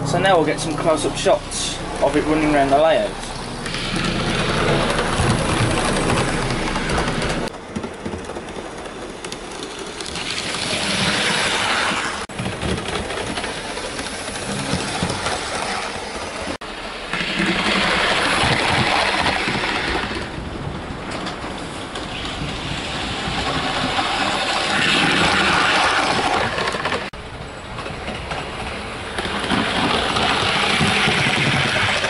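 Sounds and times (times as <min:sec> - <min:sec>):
model train whirring on track: 0:00.0 - 0:32.0.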